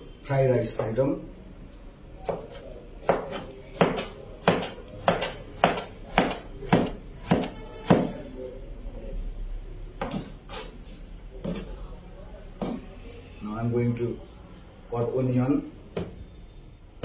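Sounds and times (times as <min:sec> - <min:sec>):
knife chopping on cutting board: 0:02.2 - 0:08.2.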